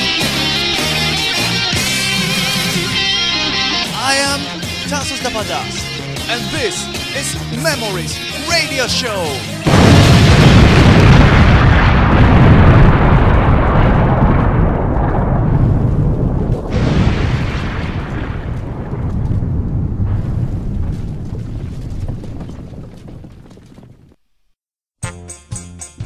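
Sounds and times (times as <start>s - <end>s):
explosion: 9.6s - 24.1s.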